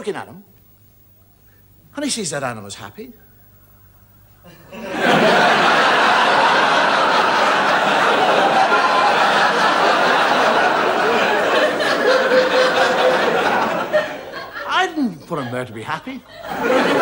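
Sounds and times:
audience laughing: 4.5 - 17.0.

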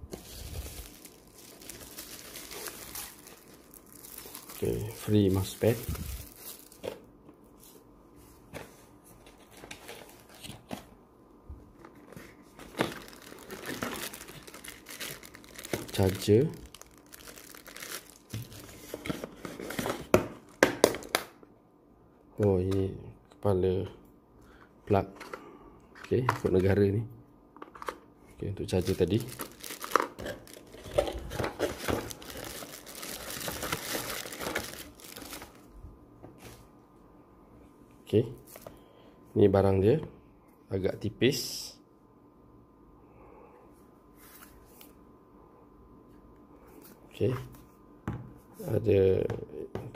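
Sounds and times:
plastic bag crinkling: 0.1 - 7.0, 12.6 - 19.0, 28.7 - 35.7.

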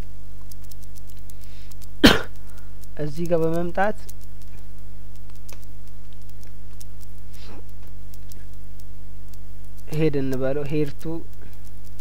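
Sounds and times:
electrical mains hum: 0.0 - 12.0
keyboard keys clicking: 0.4 - 1.9, 2.8 - 8.9.

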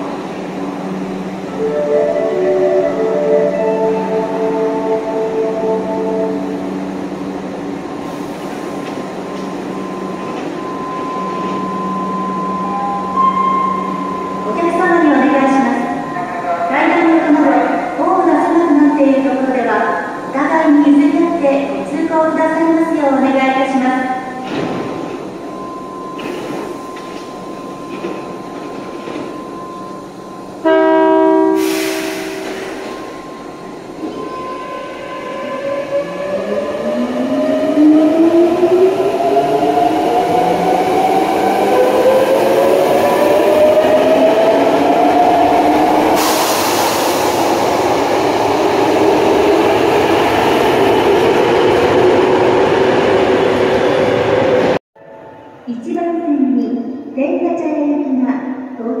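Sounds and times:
subway train rumble: 0.0 - 59.0
train horn blast: 30.6 - 32.6
air hiss: 31.6 - 32.8, 46.2 - 47.6.

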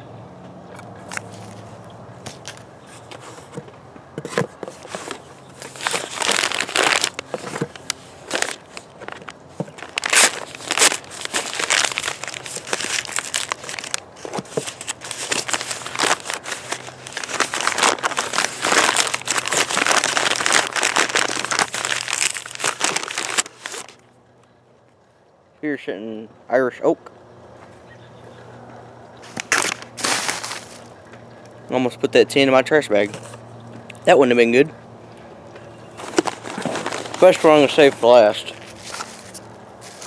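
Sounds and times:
scissors cutting paper mailer: 4.3 - 24.0
plastic bag crinkling: 4.7 - 24.0, 29.2 - 31.0, 36.0 - 40.0.

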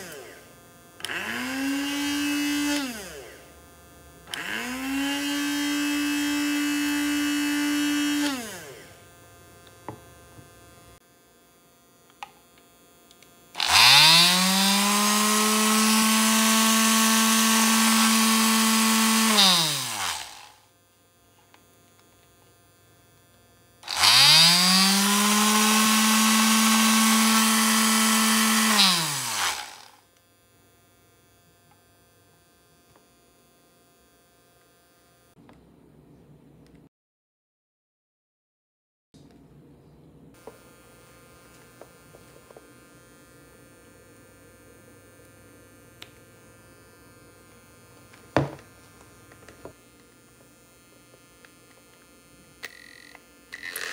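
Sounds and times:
electric sander spinning: 0.0 - 10.8, 13.5 - 20.6, 23.8 - 30.0, 40.4 - 53.9
coffee grinder motor: 0.0 - 10.9, 13.1 - 20.6, 23.2 - 32.0, 40.4 - 53.9.

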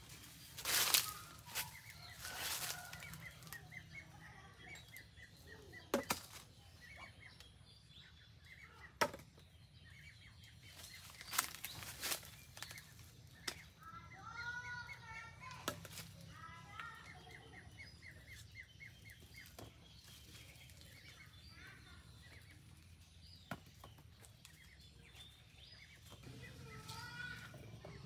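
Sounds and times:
branches rustling: 0.0 - 4.1, 5.9 - 6.7, 10.5 - 14.2, 15.0 - 17.4, 18.3 - 27.6
faint bird chirps: 0.0 - 15.6, 16.3 - 28.0.

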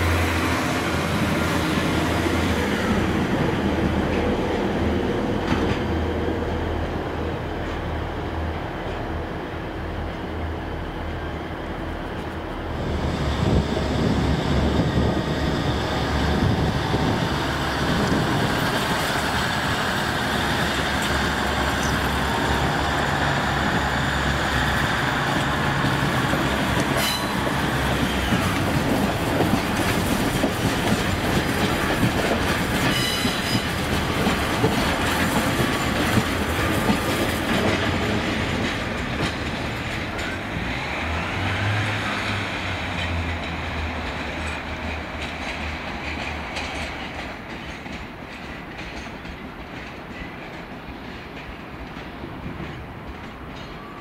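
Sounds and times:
train wheels clattering over rail joints: 14.7 - 54.0.

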